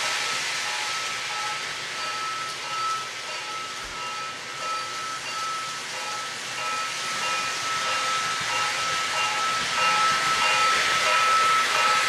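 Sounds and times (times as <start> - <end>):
model train running: 0.0 - 12.0
steady hiss: 0.0 - 12.0.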